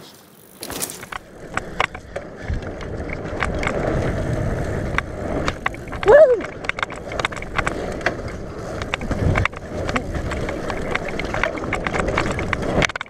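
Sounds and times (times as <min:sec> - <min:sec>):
bike rattling and clicking: 0:00.0 - 0:13.0
bike tyres on dirt: 0:00.0 - 0:13.0.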